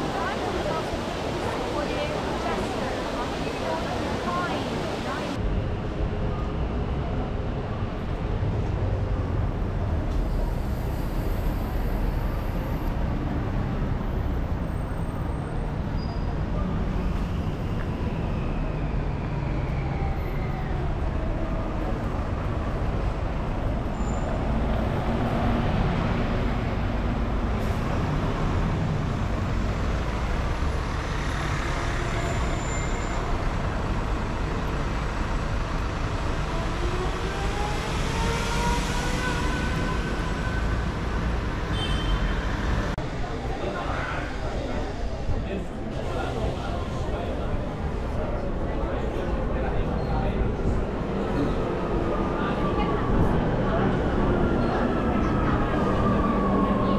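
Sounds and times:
buses passing: 0:00.0 - 0:56.9
low traffic rumble: 0:00.0 - 0:56.9.

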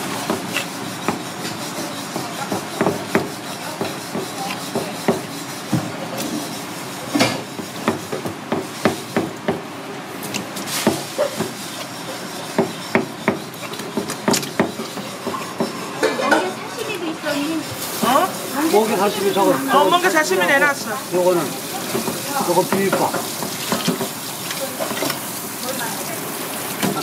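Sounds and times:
steady background noise: 0:00.0 - 0:27.0
knife chopping on plastic board: 0:00.2 - 0:05.9, 0:07.2 - 0:09.6, 0:10.3 - 0:15.8, 0:21.9 - 0:24.1.

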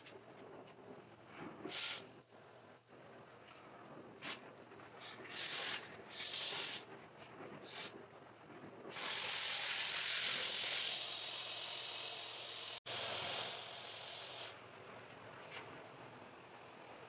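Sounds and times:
carpet extraction machine hissing: 0:08.9 - 0:14.6.

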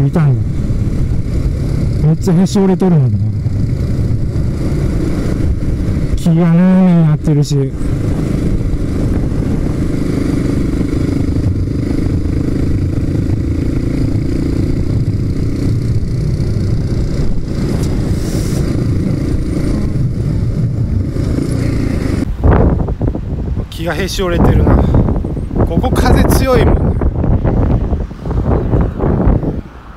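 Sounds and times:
wind rumble on microphone: 0:00.0 - 0:29.9
motorcycle engine running: 0:00.3 - 0:06.9, 0:07.7 - 0:22.3.

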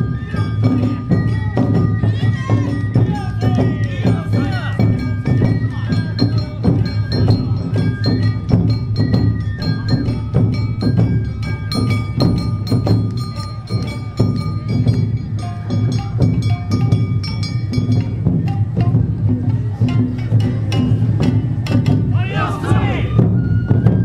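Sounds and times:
bamboo flute notes: 0:00.0 - 0:14.1, 0:22.1 - 0:24.0
taiko drums: 0:00.0 - 0:24.0.

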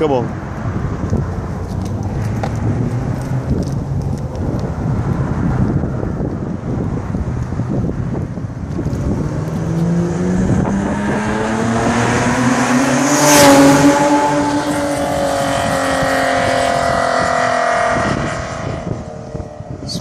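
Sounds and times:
car engine accelerating past: 0:08.9 - 0:19.7.

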